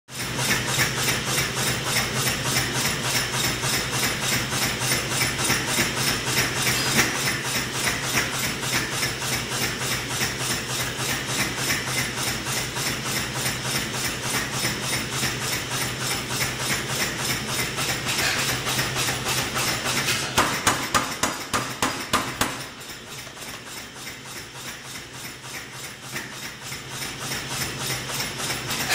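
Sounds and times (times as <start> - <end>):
power hammer beating: 17.5 - 23.8.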